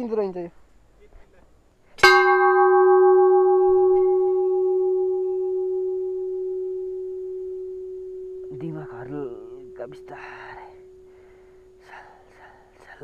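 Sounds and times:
temple bell ringing: 2.0s - 12.0s.

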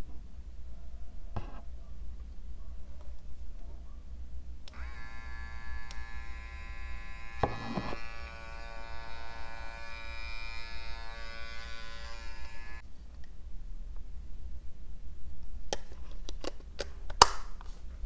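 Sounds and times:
epilator motor whine: 4.8s - 12.8s.

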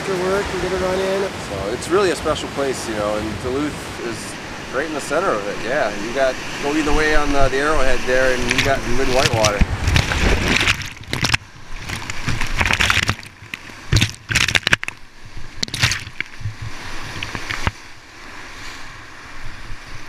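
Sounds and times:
river rushing: 0.0s - 20.0s
water surging over microphone: 0.0s - 20.0s.

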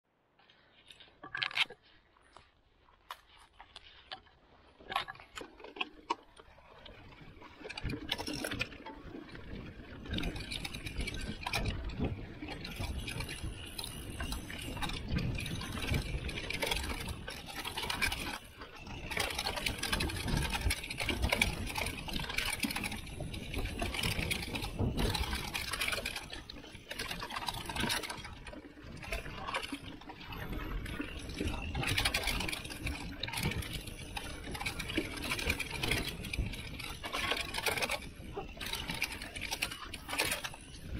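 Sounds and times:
bike tyres rattling on dirt: 0.4s - 40.9s
wind on microphone: 9.3s - 40.9s.

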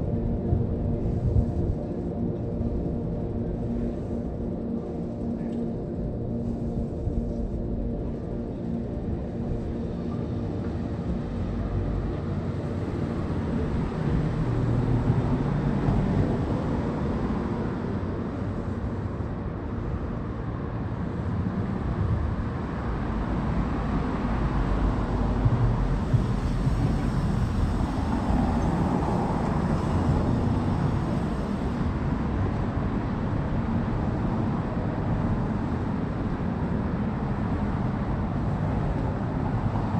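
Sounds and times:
traffic noise: 0.0s - 39.9s
car passing by: 23.4s - 32.5s.

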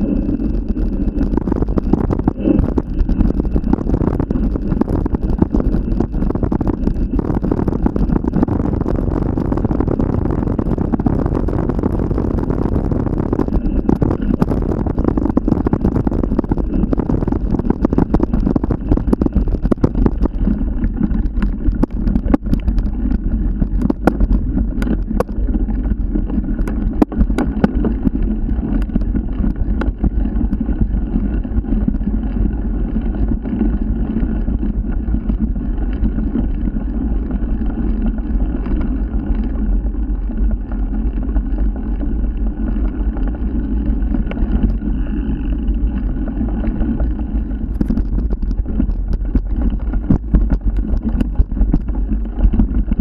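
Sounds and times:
vehicle rumbling: 0.0s - 53.0s
sharp clicks and knocks: 13.3s - 30.8s, 46.6s - 53.0s.

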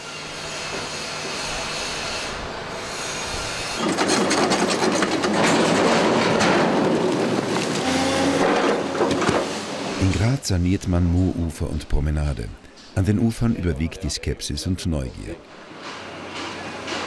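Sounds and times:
boulders tumbling and clattering: 3.8s - 9.6s.

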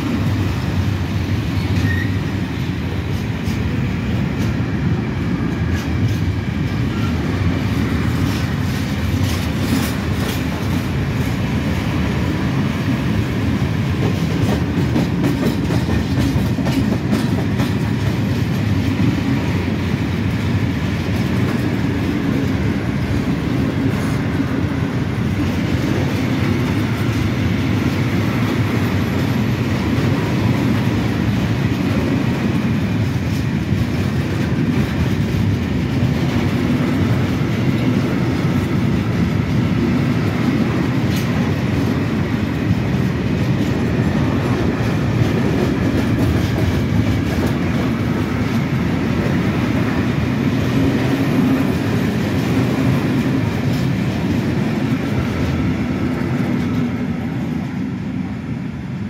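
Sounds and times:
train wheels rumbling on rail: 0.0s - 59.0s
wheels clicking over rail joints: 13.9s - 19.1s, 25.3s - 56.9s.

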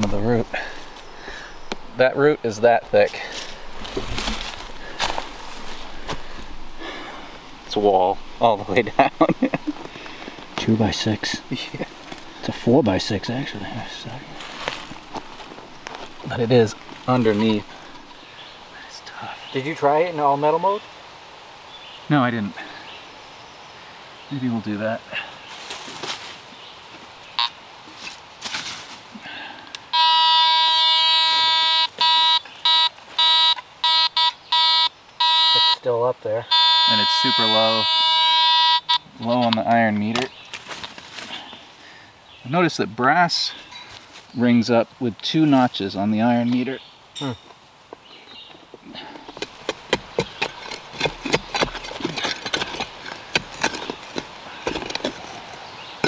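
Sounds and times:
metal detector tone: 29.9s - 35.9s, 36.5s - 39.1s
metal detector short beeps: 30.0s - 35.8s, 36.5s - 39.0s
digging tool chopping soil: 49.1s - 55.5s.

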